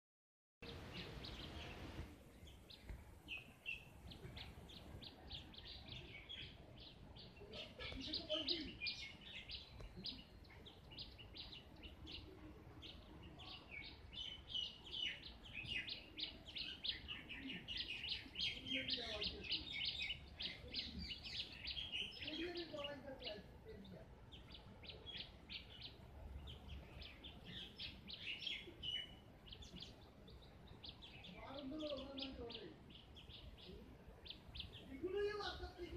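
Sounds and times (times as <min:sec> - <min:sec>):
birds chirping: 0:00.6 - 0:35.9.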